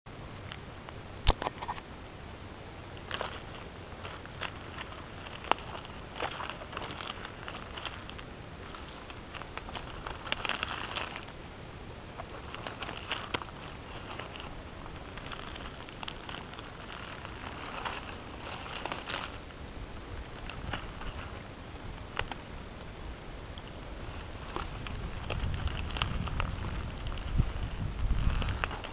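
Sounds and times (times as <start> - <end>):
sharp clicks and snaps: 0.1 - 2.1
rustling and crinkling: 0.1 - 2.2, 2.8 - 28.9.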